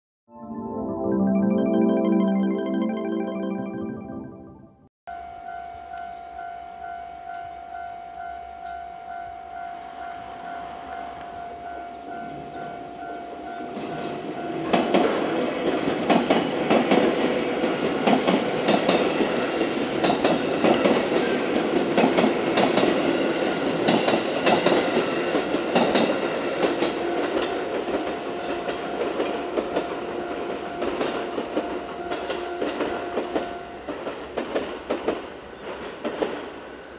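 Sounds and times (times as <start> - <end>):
level crossing warning bell: 5.1 - 15.0, 27.0 - 33.9
train wheels clattering on rails: 13.7 - 36.9.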